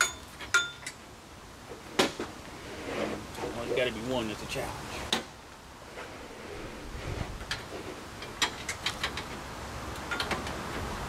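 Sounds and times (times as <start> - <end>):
hand tools clinking on metal: 0.0 - 1.0.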